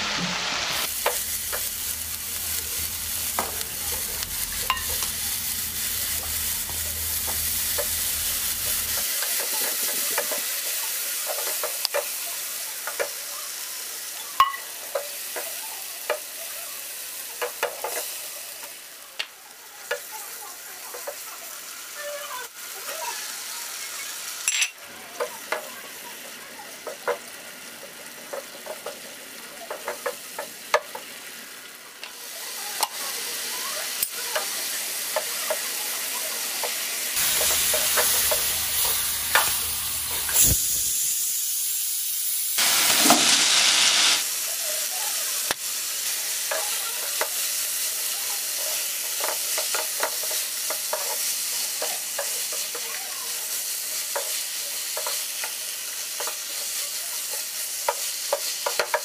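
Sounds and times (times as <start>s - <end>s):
food sizzling in a pan: 0.0s - 59.0s
spatula scraping and tapping pan: 1.0s - 1.7s, 17.4s - 18.1s, 28.3s - 29.1s, 29.7s - 31.1s, 48.6s - 52.9s, 54.1s - 59.0s.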